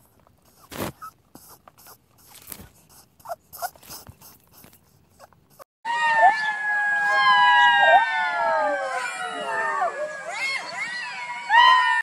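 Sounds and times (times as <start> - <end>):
animals howling: 5.9 - 12.0.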